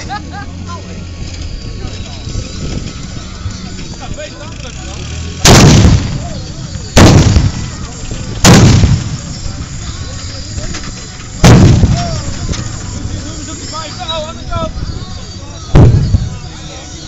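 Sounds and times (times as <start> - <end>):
cannon bangs with rumbling echo: 5.4 - 6.3, 7.0 - 7.8, 8.4 - 9.2, 11.4 - 12.2.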